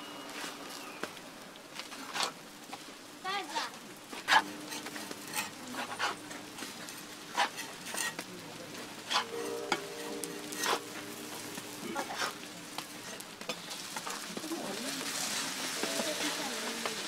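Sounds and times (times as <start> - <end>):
food sizzling on a griddle: 0.0 - 17.0
spatula scrapes and clicks: 4.3 - 8.3.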